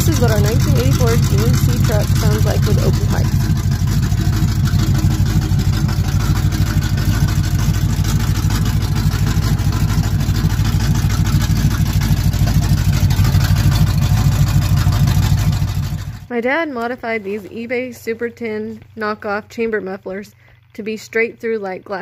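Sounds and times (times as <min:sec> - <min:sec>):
truck engine idling: 0:00.0 - 0:16.3.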